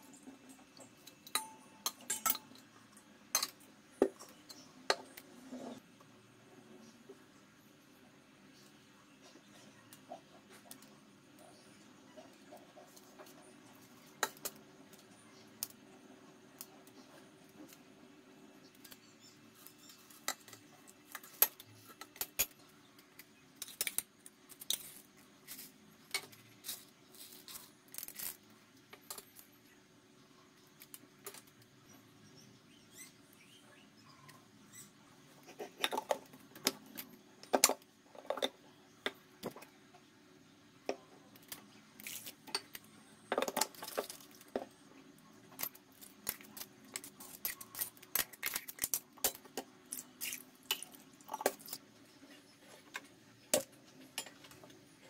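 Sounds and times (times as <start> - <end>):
steel kitchenware clinking: 1.0 - 3.6.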